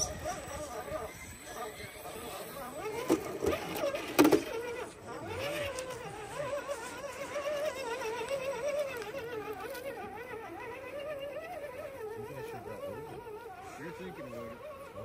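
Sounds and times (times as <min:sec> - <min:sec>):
small electric motor whining: 0:00.0 - 0:15.0.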